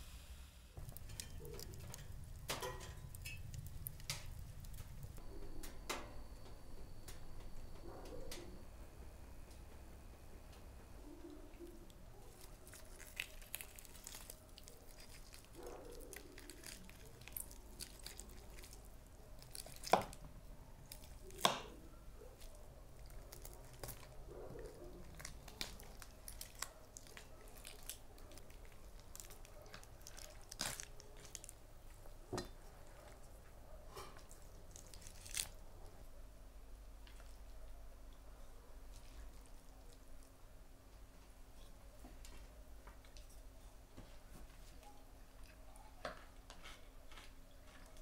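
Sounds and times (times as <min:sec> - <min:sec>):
crisp skin crackling: 0:00.8 - 0:05.2, 0:12.2 - 0:31.6, 0:34.2 - 0:35.6
meat tearing: 0:12.2 - 0:31.6, 0:34.2 - 0:35.6.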